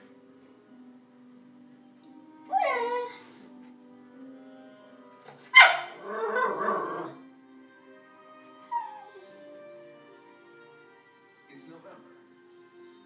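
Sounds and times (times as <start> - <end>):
faint documentary music: 0.0 - 13.0
dog whining: 2.5 - 3.4, 8.5 - 9.4
small dog yelping bark: 5.5 - 6.8.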